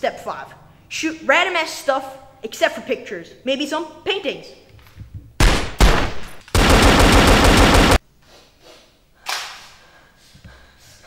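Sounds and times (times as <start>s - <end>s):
rapid automatic gunfire: 5.4s - 8.0s
single gunshots: 5.4s - 8.0s.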